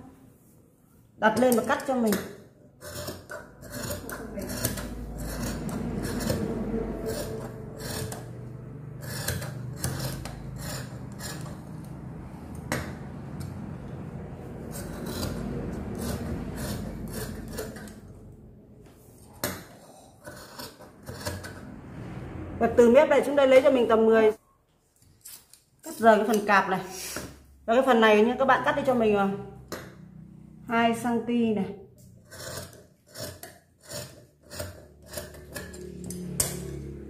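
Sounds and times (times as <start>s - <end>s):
shears cutting thick fabric: 2.8s - 12.0s, 32.2s - 36.9s.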